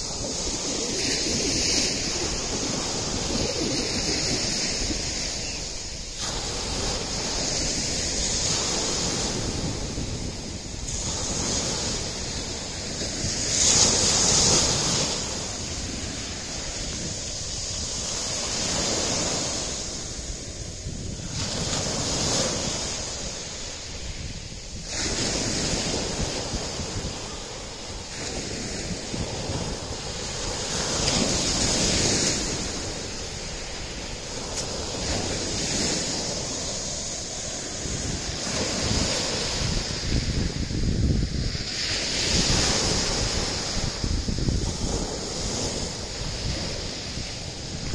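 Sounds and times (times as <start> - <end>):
waves breaking on pebble beach: 0.0 - 47.9.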